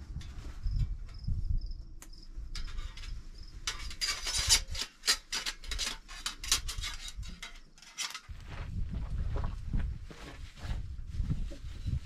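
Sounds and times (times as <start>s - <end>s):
faint insect chirps: 0.6s - 3.6s
metal panels scraping: 2.5s - 8.3s.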